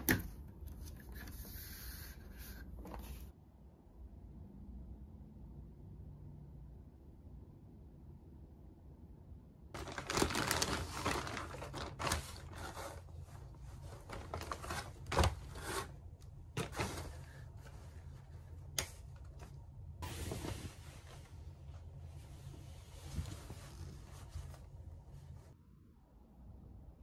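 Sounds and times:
plastic bag rustling: 9.8 - 18.4.

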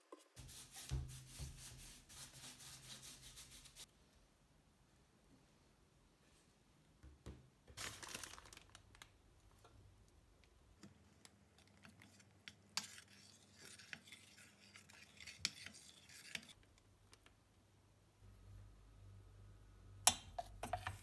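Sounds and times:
metal spoon scraping steel pot: 12.0 - 16.6, 20.1 - 21.0.

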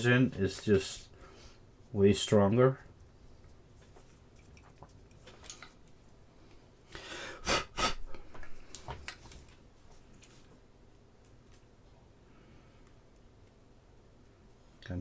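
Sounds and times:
fingers rustling: 3.0 - 6.6.

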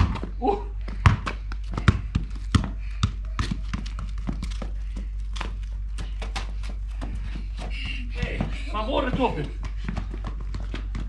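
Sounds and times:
football thudding on pavement: 0.0 - 4.8.

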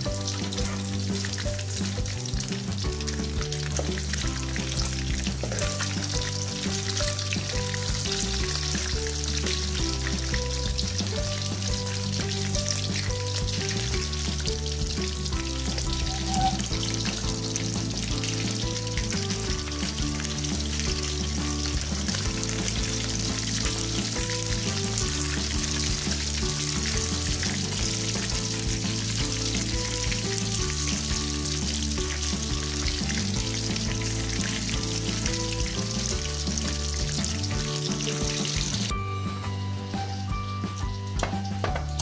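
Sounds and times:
background music: 0.0 - 42.0
fish frying in hot oil: 0.0 - 42.0
metal ladle in wok: 16.1 - 16.6.

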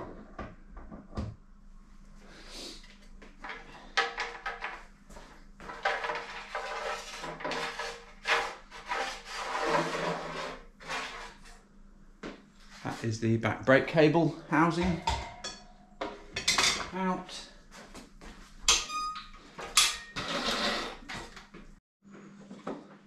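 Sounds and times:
cable housing scraping in frame: 5.8 - 11.6.

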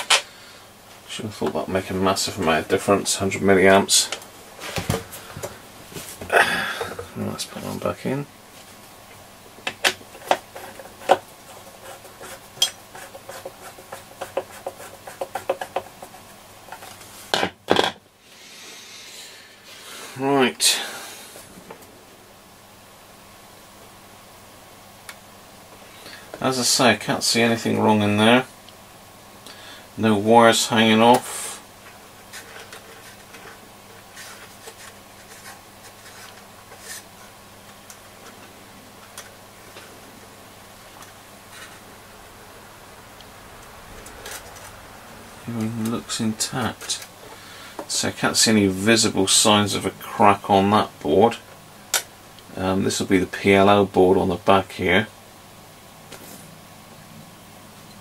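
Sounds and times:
steady low hum: 0.0 - 58.0
rustles and clicks of handling wiring: 8.5 - 18.0, 31.0 - 40.0, 43.6 - 44.8, 45.4 - 48.1
scraping noises: 32.2 - 37.4.

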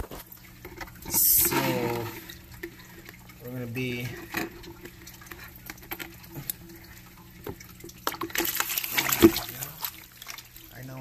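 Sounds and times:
water dripping: 0.0 - 11.0
water splashing: 0.0 - 11.0
water sloshing in plastic bag: 7.8 - 11.0.

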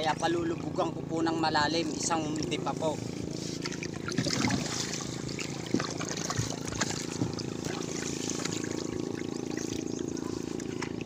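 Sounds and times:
steady low hum: 0.0 - 11.0
net splashing into water: 3.6 - 11.0.

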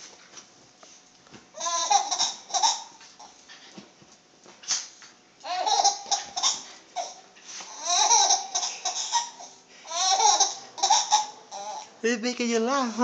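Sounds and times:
infant laughing: 1.6 - 3.4, 5.4 - 11.9.

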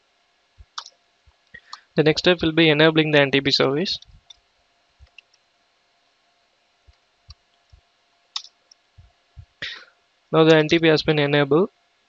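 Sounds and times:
faint steady hum: 0.0 - 12.0
keyboard keys clicking: 8.4 - 8.8, 10.5 - 10.8.

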